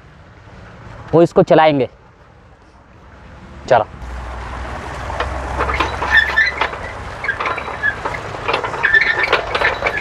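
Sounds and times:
hose knocks and rustles: 5.0 - 10.0.

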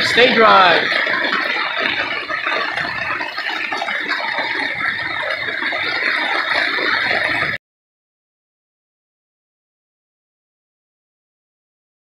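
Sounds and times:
heavy rain on pavement: 0.0 - 7.5.

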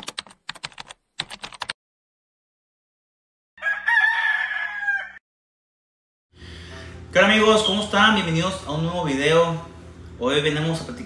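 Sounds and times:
keyboard typing clicks: 0.0 - 1.8.

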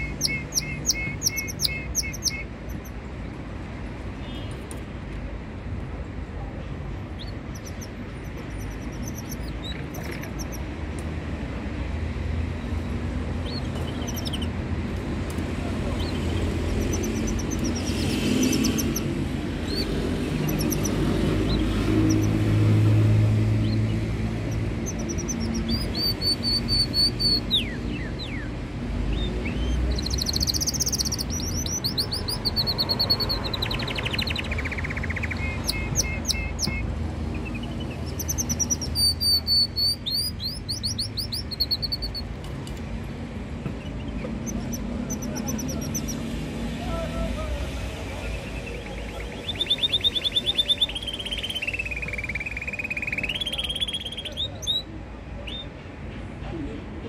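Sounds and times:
canary singing trills: 0.0 - 3.1, 7.1 - 10.8, 12.6 - 14.6, 15.8 - 28.5, 29.1 - 42.4, 43.8 - 46.4, 48.2 - 55.7.

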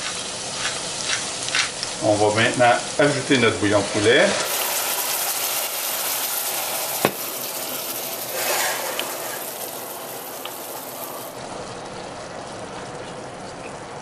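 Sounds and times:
meat and broth sizzling in saucepan: 0.0 - 13.4.

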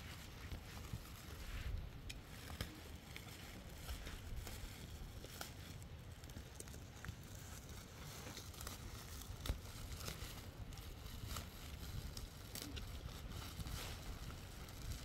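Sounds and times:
plastic sacks rustling and crinkling: 0.0 - 15.0.

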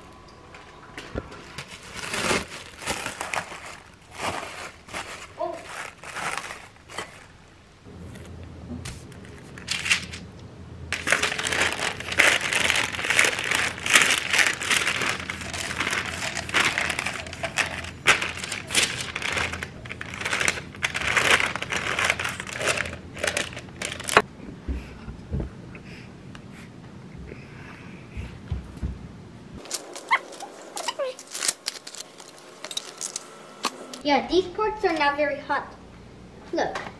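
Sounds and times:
parchment paper crinkling: 1.5 - 7.4, 8.9 - 10.3, 11.0 - 24.2, 29.6 - 33.3.

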